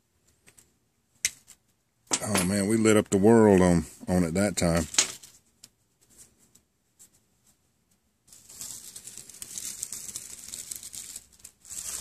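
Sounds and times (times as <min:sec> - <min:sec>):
dry leaves crackling: 0:08.3 - 0:12.0.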